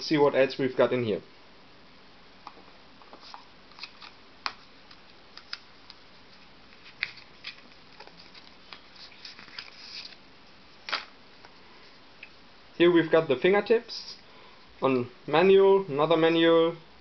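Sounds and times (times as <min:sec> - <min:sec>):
paper rustling: 0:03.1 - 0:11.1.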